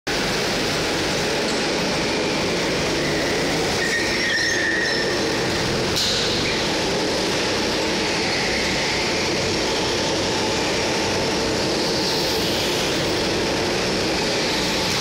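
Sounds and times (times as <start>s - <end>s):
go-kart engines running: 0.2s - 15.0s
brief high squeal: 3.0s - 5.2s.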